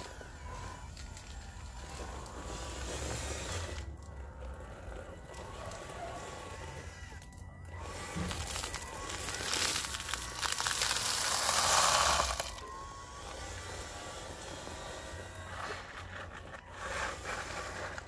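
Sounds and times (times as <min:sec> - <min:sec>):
gravel pouring onto gravel: 0:08.0 - 0:12.7.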